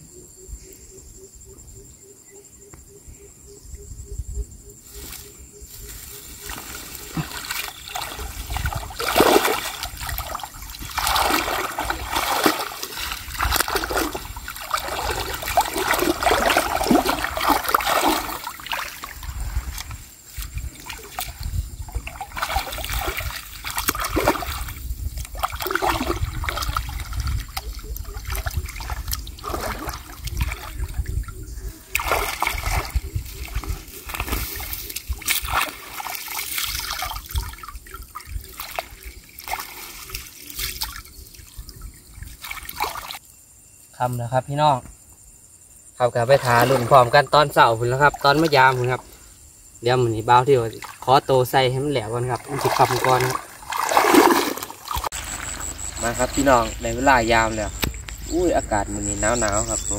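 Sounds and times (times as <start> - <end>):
hands splashing in muddy water: 6.4 - 31.0, 31.9 - 41.1, 46.3 - 47.2, 52.1 - 58.2
water trickling: 6.4 - 43.2, 49.9 - 59.9.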